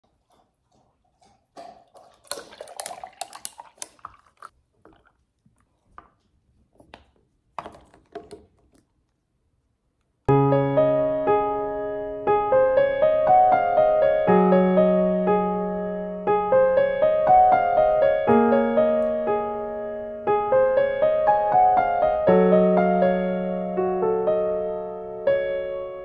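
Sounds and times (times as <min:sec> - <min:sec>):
piano music: 0:10.3 - 0:26.0.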